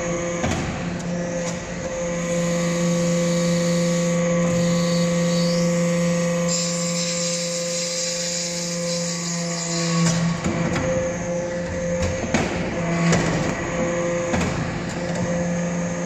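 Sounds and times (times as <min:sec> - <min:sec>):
hydraulic power unit whining hum: 0:00.0 - 0:16.0.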